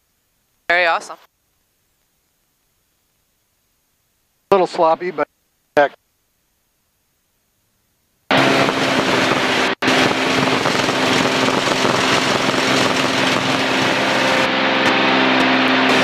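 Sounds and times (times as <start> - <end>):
propeller aircraft engine drone: 8.3 - 16.0
rushing air noise: 8.3 - 16.0.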